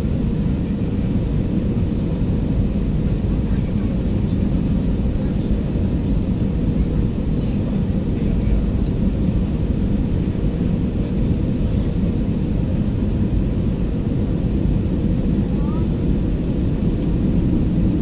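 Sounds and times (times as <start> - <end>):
aircraft engine rumble in cabin: 0.0 - 18.0
faint steady hum: 6.8 - 18.0
rushing airflow: 7.7 - 18.0.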